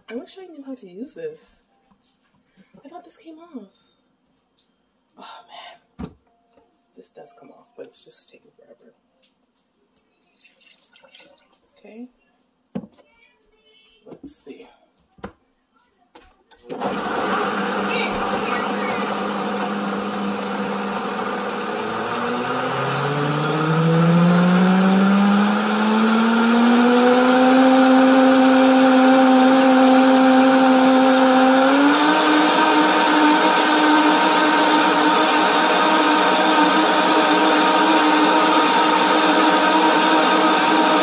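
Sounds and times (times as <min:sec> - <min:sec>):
blender motor running: 0:16.7 - 0:41.0.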